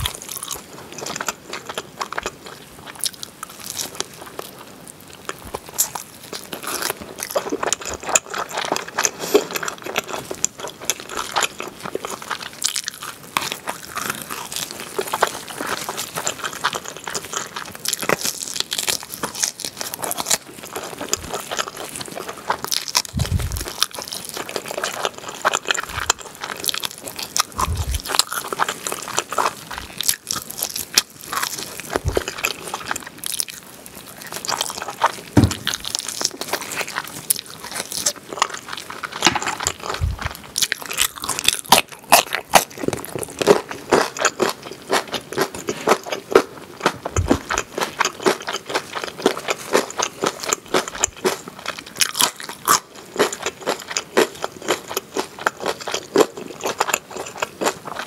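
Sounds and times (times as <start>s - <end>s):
crunchy biting and chewing: 0.0s - 58.0s
short dull thumps: 35.4s - 35.8s.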